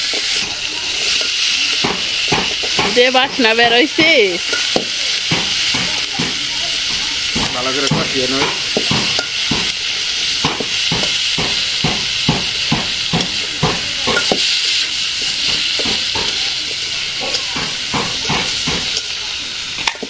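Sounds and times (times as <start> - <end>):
food sizzling in metal pan: 0.0 - 20.0.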